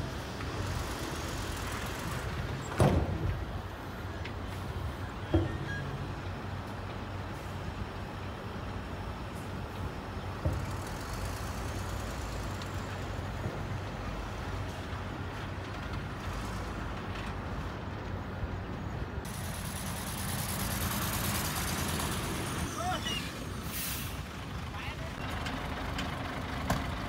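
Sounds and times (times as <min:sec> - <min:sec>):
diesel truck engine running: 0:19.0 - 0:27.0.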